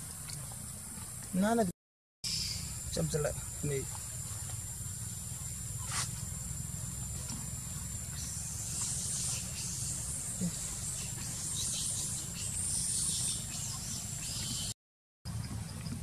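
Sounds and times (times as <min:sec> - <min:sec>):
high-pitched insect drone: 0:02.3 - 0:14.7
hissing rustles: 0:03.4 - 0:14.7.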